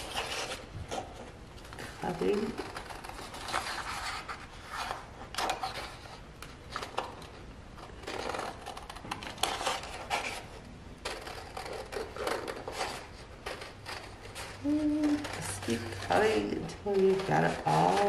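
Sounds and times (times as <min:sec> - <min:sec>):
scissors snipping paper: 0:02.0 - 0:04.3, 0:11.0 - 0:18.0.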